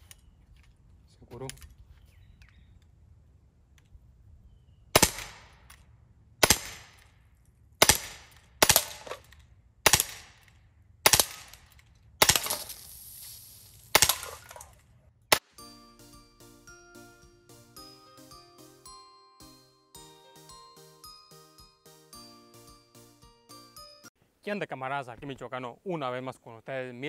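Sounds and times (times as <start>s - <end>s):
bb pistol shots: 4.9s - 5.8s, 6.4s - 7.1s, 7.8s - 13.0s, 13.8s - 15.6s.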